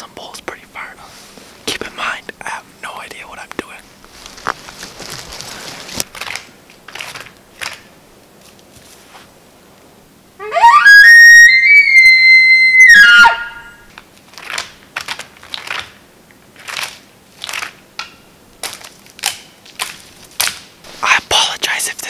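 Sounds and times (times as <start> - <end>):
footsteps crunching through undergrowth: 3.8 - 9.4, 18.6 - 21.1
elk bugle call: 10.4 - 13.9.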